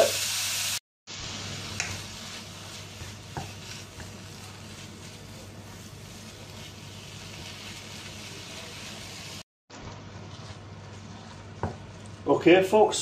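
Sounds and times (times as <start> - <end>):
meat sizzling in a frying pan: 0.0 - 9.5.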